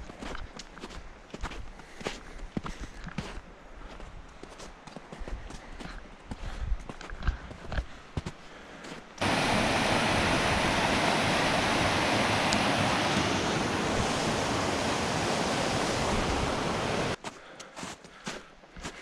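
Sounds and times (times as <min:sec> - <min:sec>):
creek rushing over rocks: 0:09.2 - 0:17.2.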